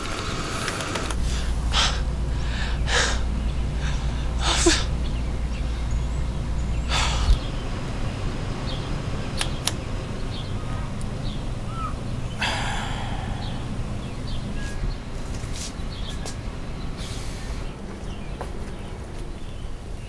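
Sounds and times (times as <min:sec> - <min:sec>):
low outdoor rumble: 0:00.0 - 0:20.0
faint bird chirps: 0:02.7 - 0:16.4.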